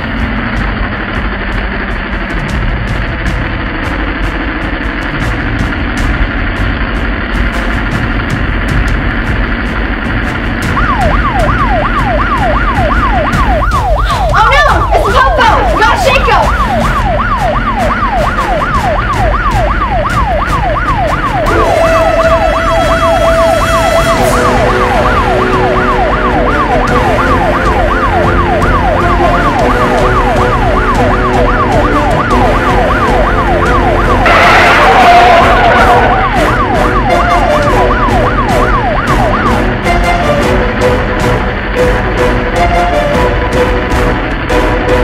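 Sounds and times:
police siren yelping: 10.0 - 45.0
rushing surge: 15.6 - 45.0.

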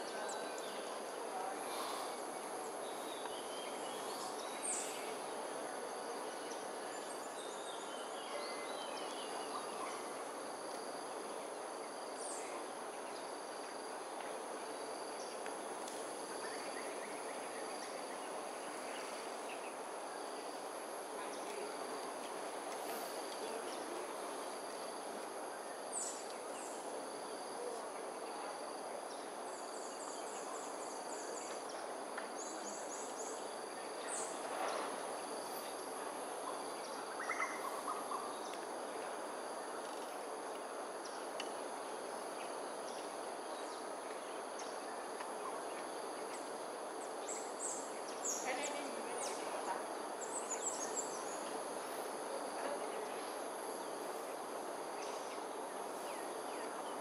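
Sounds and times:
insect chorus: 0.0 - 57.0.

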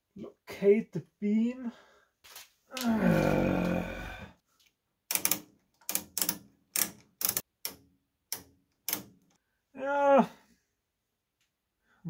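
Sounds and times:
man humming: 2.7 - 4.3.

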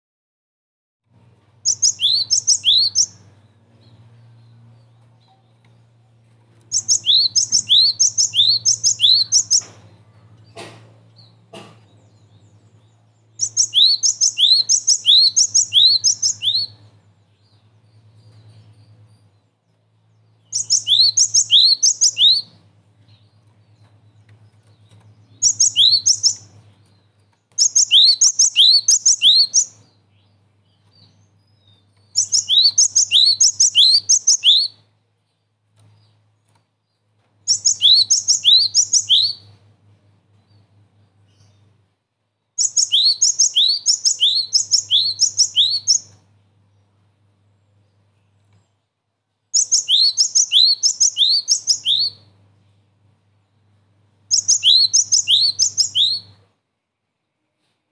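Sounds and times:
faint low hum: 1.1 - 57.9
bird singing two-part notes: 1.7 - 3.2, 6.7 - 9.7, 13.4 - 16.8, 20.5 - 22.5, 25.4 - 26.5.

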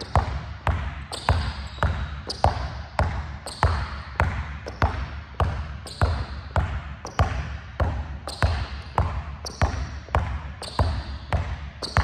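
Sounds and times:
basketball bouncing on court floor: 0.0 - 12.0.

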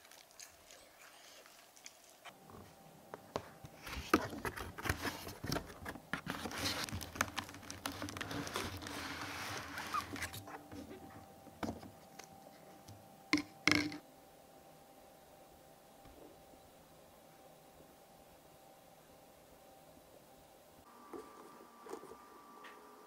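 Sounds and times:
packaging rustling: 3.6 - 11.1.

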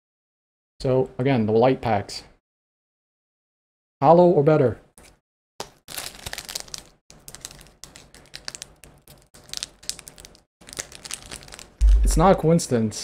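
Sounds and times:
foil wrapper crinkling: 5.6 - 12.2.

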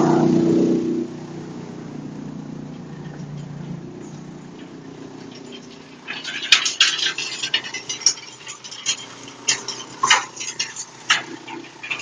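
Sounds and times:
wood chipper running: 0.0 - 12.0
metallic clattering and knocks: 2.6 - 12.0.

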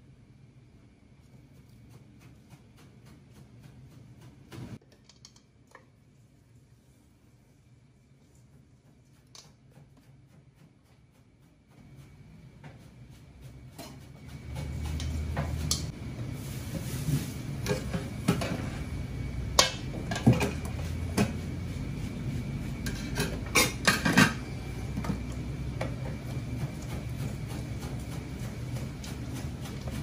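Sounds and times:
low kitchen rumble: 0.0 - 30.0
utensils clinking on metal bowl: 22.9 - 24.4.

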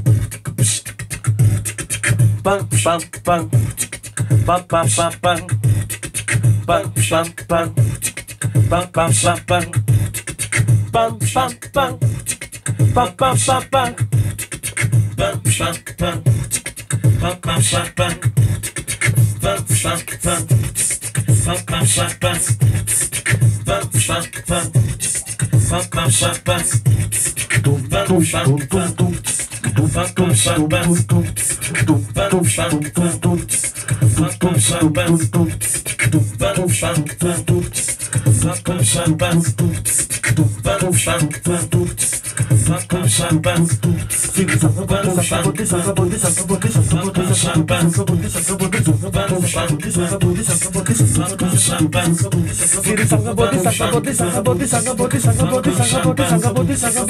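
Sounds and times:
beatboxing drum sounds: 0.0 - 57.0
vocal melody lines: 0.0 - 57.0
deep bass line: 42.6 - 57.0.

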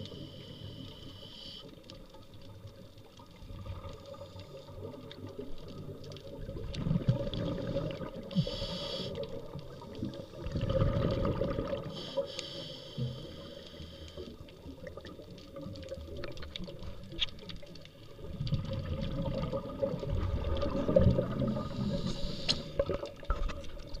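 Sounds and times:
regulator inhale hiss: 0.0 - 1.8, 8.3 - 9.4, 11.9 - 14.4, 21.5 - 22.8
exhaled bubbles rumbling: 2.4 - 8.6, 9.2 - 12.0, 14.4 - 24.0.

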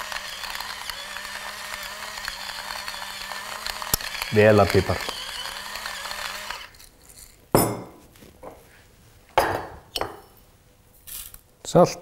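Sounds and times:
pepper mill grinding: 0.0 - 7.4.

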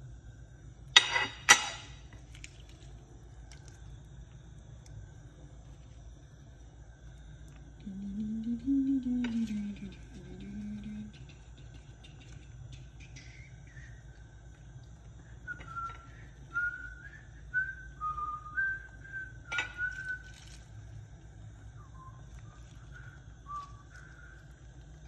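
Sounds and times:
low steady hum: 0.0 - 25.0
person whistling a slow tune: 7.8 - 11.2, 13.0 - 14.4, 15.2 - 20.6, 21.6 - 24.6.

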